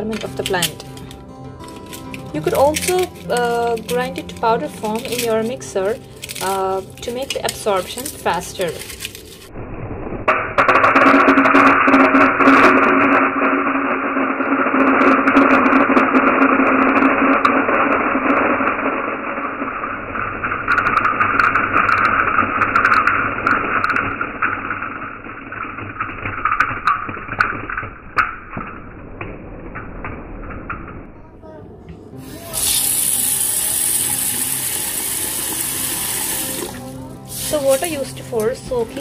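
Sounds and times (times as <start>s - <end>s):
beans rattling into metal bowl: 0.0s - 9.5s, 32.6s - 39.0s.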